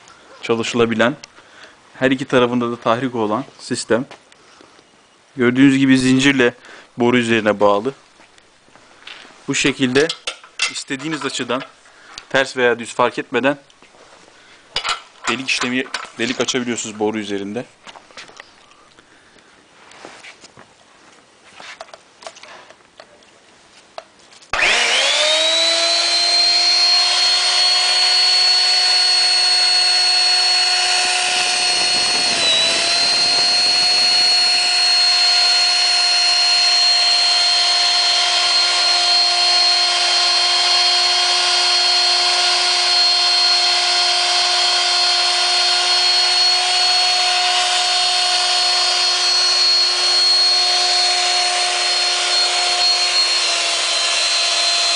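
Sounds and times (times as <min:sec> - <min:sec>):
electric motor high whine: 0:24.6 - 0:54.9.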